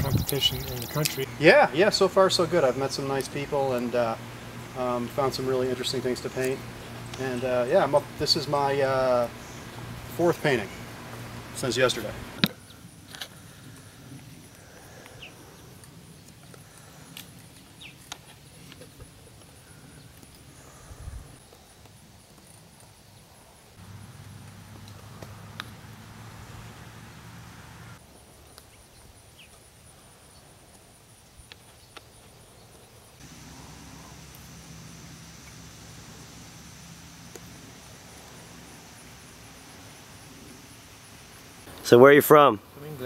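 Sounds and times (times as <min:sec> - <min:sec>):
falling chirps: 0:00.0 - 0:01.4
pulsing insect trill: 0:00.0 - 0:01.4, 0:33.2 - 0:41.7
insects chirping: 0:00.0 - 0:43.0
low hum: 0:33.2 - 0:41.6.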